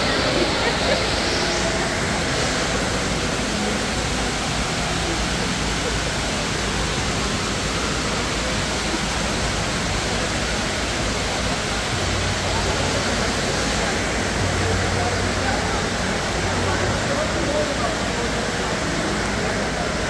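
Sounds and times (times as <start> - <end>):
indoor waterfall rushing: 0.0 - 20.0.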